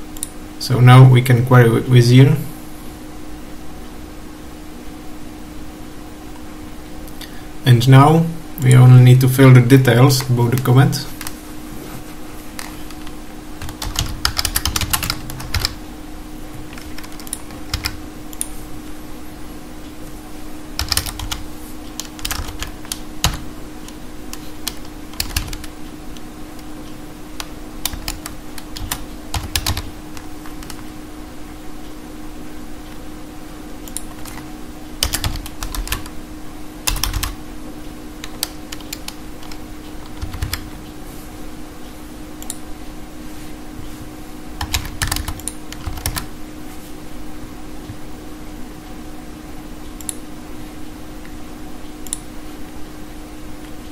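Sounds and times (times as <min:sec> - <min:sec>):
steady low hum: 0:00.0 - 0:53.9
typing on computer keyboard: 0:12.6 - 0:15.8, 0:16.6 - 0:18.0, 0:20.8 - 0:23.4, 0:24.3 - 0:25.7, 0:27.4 - 0:30.9, 0:33.9 - 0:36.1, 0:36.8 - 0:37.4, 0:38.2 - 0:40.6, 0:44.6 - 0:46.3.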